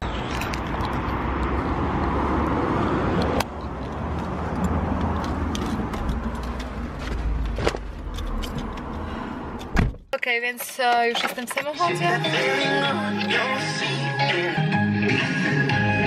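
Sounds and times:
traffic rushing: 0.0s - 10.0s
car handling clicks and knocks: 9.6s - 11.8s
thump: 9.7s - 10.0s.

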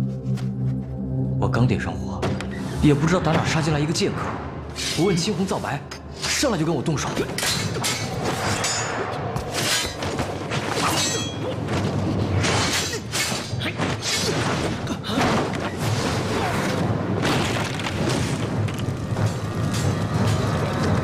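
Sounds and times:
background music: 0.0s - 21.0s
swords clashing: 7.2s - 11.6s, 12.4s - 14.5s.

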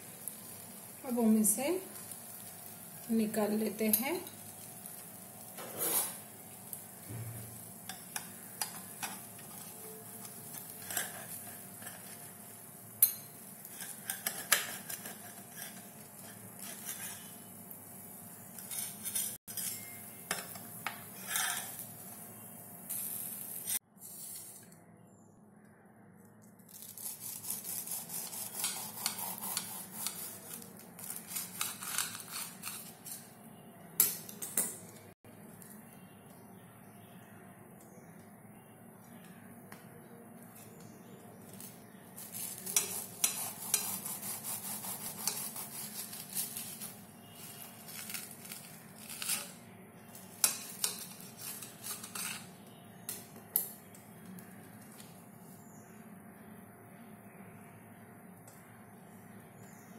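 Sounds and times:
metal utensils clinking and scraping: 3.8s - 6.3s, 7.9s - 12.4s, 13.0s - 17.4s, 18.6s - 21.9s, 28.6s - 33.3s, 45.2s - 49.6s, 50.2s - 52.6s
knife cutting toasted sandwich: 26.7s - 33.2s, 42.2s - 49.6s.

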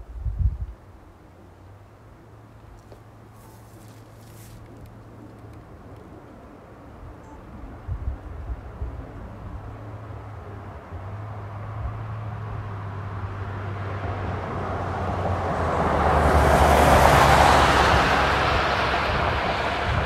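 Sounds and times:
vehicle passing by: 8.4s - 20.0s.

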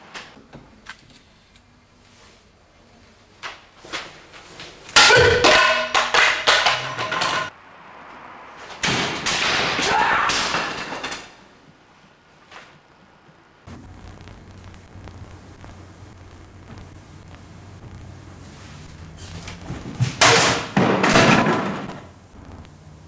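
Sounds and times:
pieces clattering on wooden floor: 5.1s - 7.5s.

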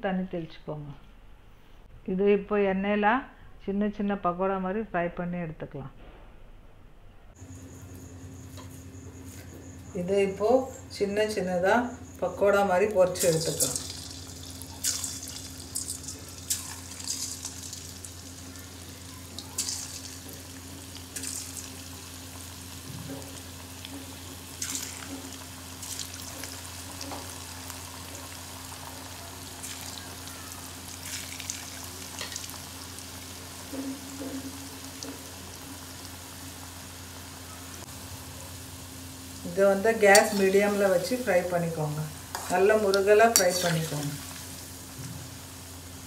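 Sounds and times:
crackles and pops of frying: 12.1s - 46.0s
batter sizzling in hot oil: 12.3s - 46.0s.

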